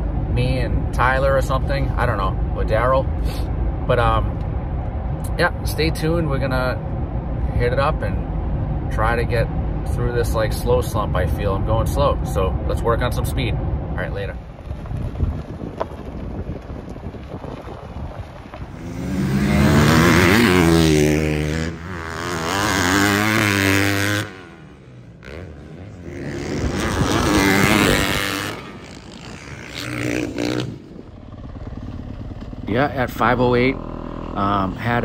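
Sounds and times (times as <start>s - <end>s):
dirt bike engine revving: 18.7s - 35.0s.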